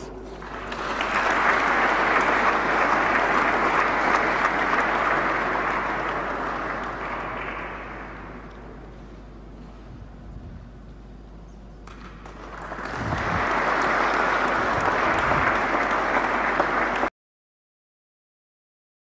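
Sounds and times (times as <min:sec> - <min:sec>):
audience applauding: 0:00.0 - 0:08.9, 0:11.9 - 0:17.1.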